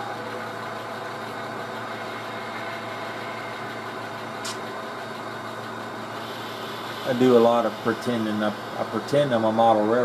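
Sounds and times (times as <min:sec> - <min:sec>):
mechanical drone: 0:00.0 - 0:10.0.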